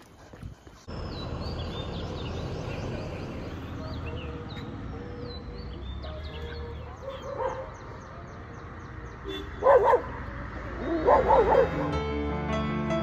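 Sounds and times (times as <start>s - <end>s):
dog barking: 7.0s - 7.8s, 9.6s - 11.9s.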